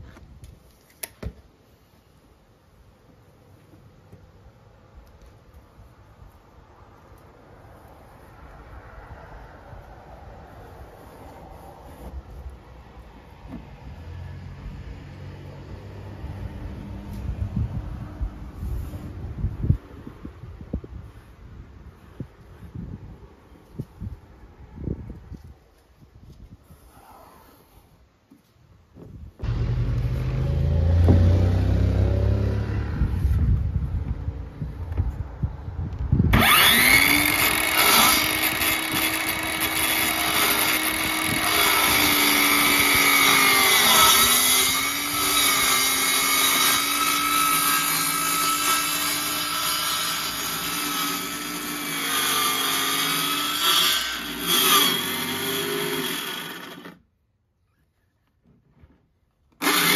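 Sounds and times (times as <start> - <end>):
low uneven motor sound: 29.4 - 33.8
jigsaw cutting plastic: 36.4 - 57.0, 59.5 - 59.9.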